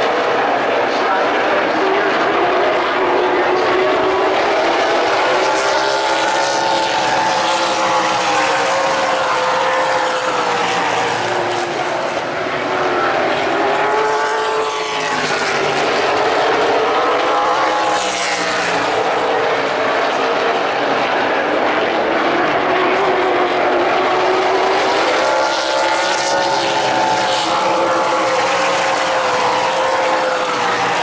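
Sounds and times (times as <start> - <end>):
race car engines passing: 0.0 - 31.0.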